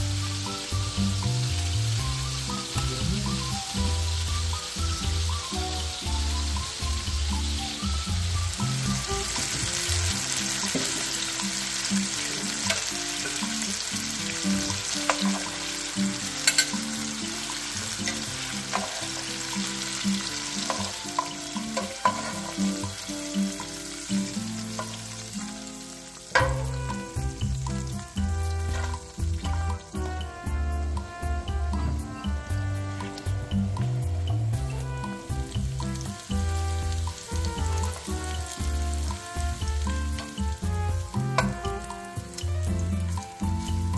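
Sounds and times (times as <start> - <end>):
background music: 0.0 - 43.9
chicken sizzling in frying pan: 0.0 - 43.9
metal tongs clicking on pan: 12.7 - 13.5, 15.1 - 15.5, 16.4 - 16.8, 20.7 - 22.6.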